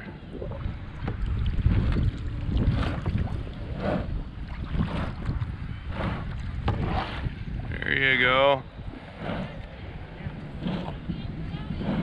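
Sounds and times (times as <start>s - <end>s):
water splashing against kayak: 0.0s - 7.7s
wind rumbling on microphone: 0.0s - 12.0s.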